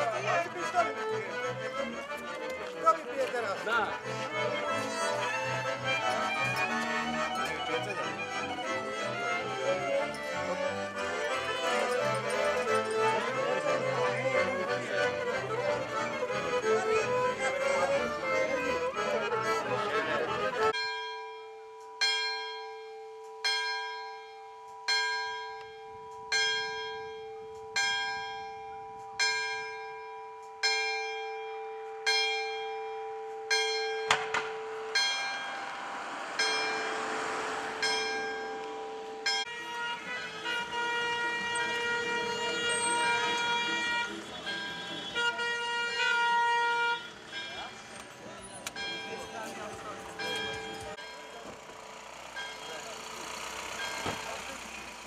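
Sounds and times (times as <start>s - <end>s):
folk band playing: 0.0s - 20.8s, 35.6s - 46.2s
church bell tolling: 20.7s - 39.9s, 40.5s - 45.0s, 48.8s - 51.5s.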